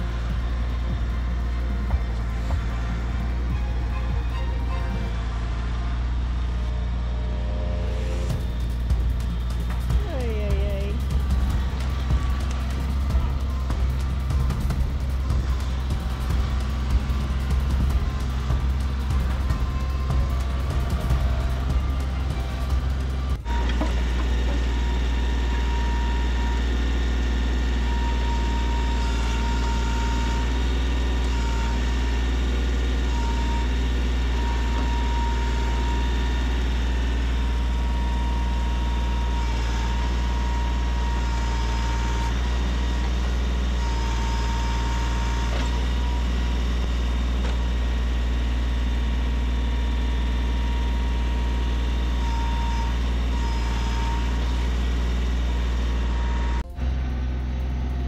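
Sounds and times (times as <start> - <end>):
tractor engine running: 0.0 - 58.0
thin high whine: 6.6 - 11.0.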